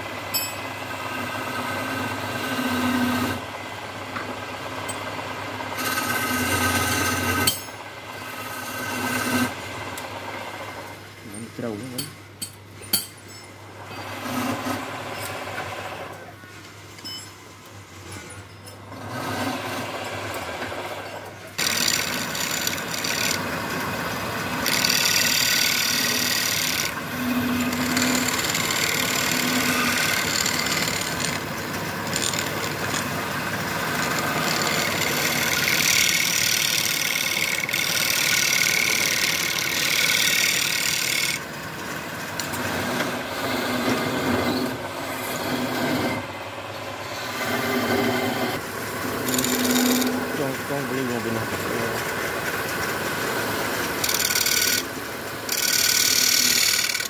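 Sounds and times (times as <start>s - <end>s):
wood lathe hum: 0.0s - 11.0s, 13.8s - 16.3s, 18.9s - 57.0s
scraper cutting wood: 24.5s - 31.4s, 42.5s - 46.3s, 47.2s - 52.0s.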